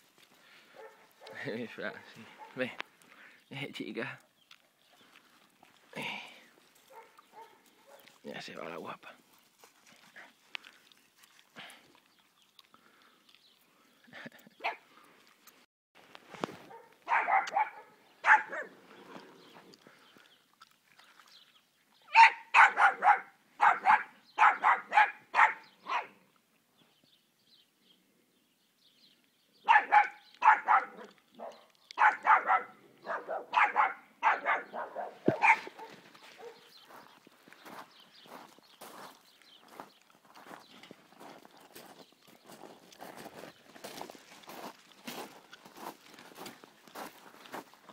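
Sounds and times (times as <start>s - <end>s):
dog barking: 0.8s - 1.5s, 2.3s - 2.6s, 6.9s - 8.1s, 16.7s - 18.7s, 22.1s - 26.2s, 29.6s - 36.7s.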